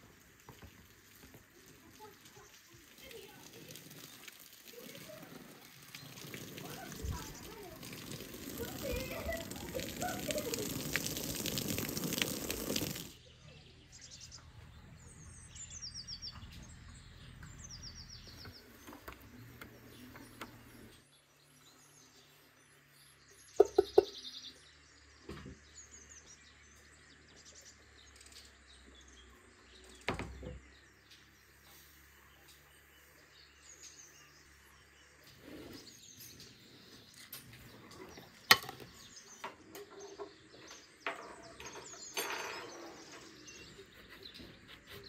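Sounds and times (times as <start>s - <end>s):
small birds chirping: 0.0s - 45.0s.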